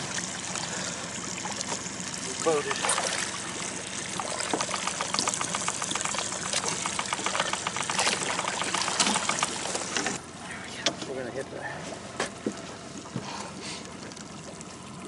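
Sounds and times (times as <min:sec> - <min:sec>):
small splashes and drips: 0:00.0 - 0:10.2
water splashing and pouring: 0:00.0 - 0:10.2.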